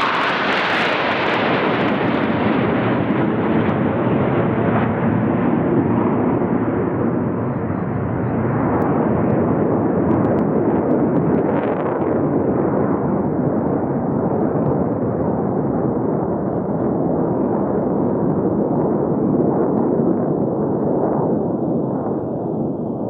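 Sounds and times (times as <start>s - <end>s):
jet aircraft rumble: 0.0s - 23.0s.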